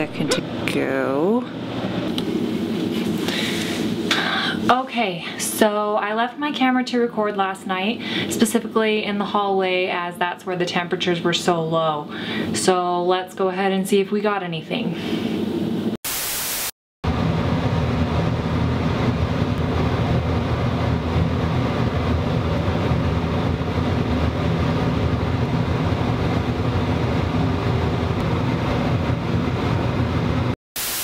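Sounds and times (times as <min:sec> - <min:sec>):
low rumbling drone: 0:00.0 - 0:00.8, 0:17.0 - 0:30.6
static hiss bursts: 0:16.1 - 0:16.8, 0:30.8 - 0:31.0.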